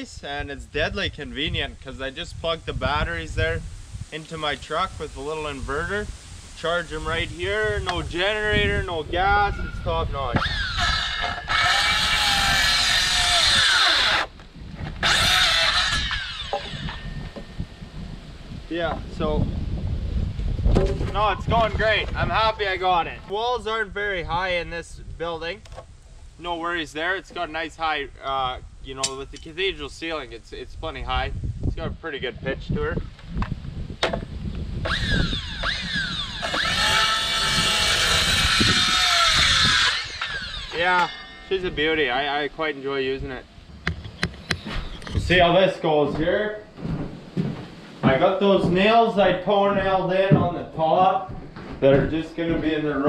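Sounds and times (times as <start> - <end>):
circular saw cutting wood: 10.3 - 14.4, 15.0 - 17.5, 34.8 - 42.1.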